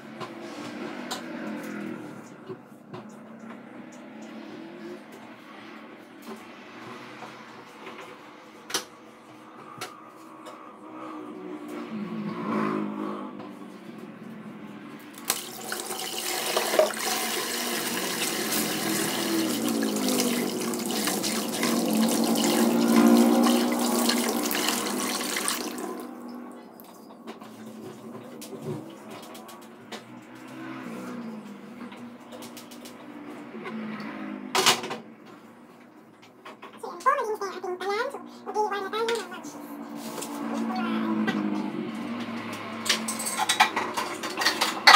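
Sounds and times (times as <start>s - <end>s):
water running from tap into sink: 15.2s - 26.1s.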